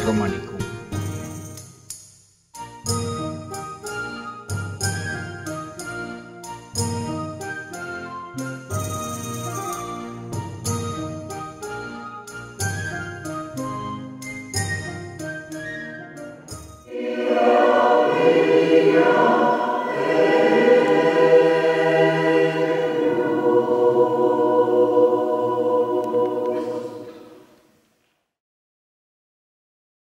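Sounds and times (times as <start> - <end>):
choir singing: 16.9 - 27.7.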